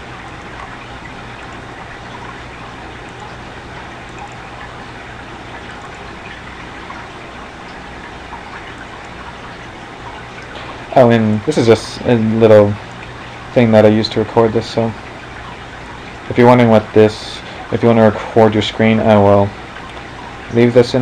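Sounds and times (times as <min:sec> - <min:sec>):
faint electrical hum: 0:00.0 - 0:21.0
background hiss: 0:09.6 - 0:21.0.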